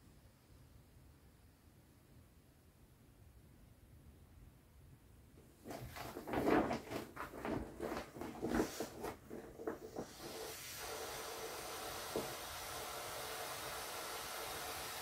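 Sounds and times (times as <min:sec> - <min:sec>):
vinyl crinkling and crackling: 0:05.6 - 0:10.3
air hissing out: 0:09.9 - 0:15.0.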